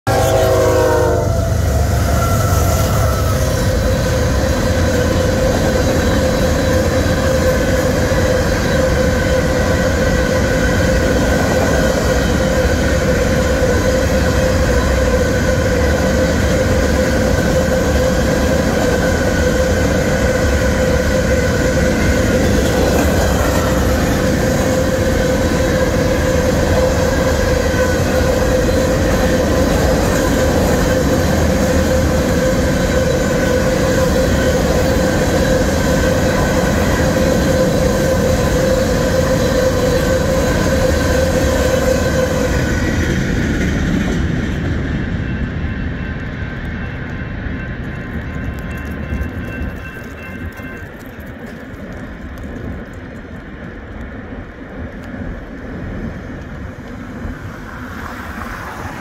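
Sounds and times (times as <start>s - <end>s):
train horn: 0.0s - 4.4s
freight train cars rumbling: 0.0s - 59.0s
crossing bell ringing: 44.2s - 51.9s.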